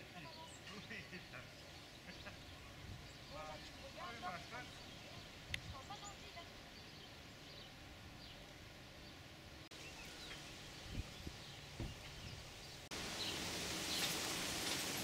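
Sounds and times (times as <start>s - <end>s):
small birds chirping: 0.0s - 14.3s
hose spraying water: 9.8s - 15.0s
low thumps: 10.9s - 12.5s.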